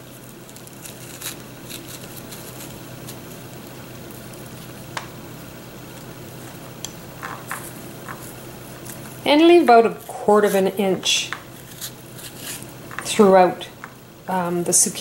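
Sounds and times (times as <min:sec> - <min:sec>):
low hum and hiss: 0:00.0 - 0:15.0
melon baller scraping zucchini: 0:00.6 - 0:03.3, 0:07.4 - 0:13.6.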